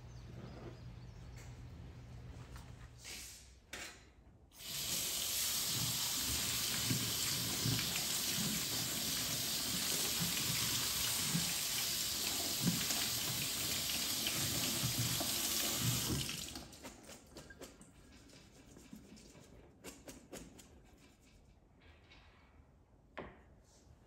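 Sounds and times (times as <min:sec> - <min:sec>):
faucet water running: 0:04.6 - 0:17.0.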